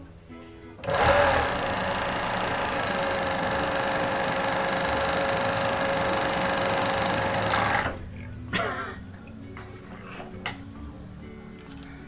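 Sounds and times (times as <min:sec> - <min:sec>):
motor whine: 0:00.8 - 0:08.0
overlock sewing machine stitching: 0:00.8 - 0:08.0.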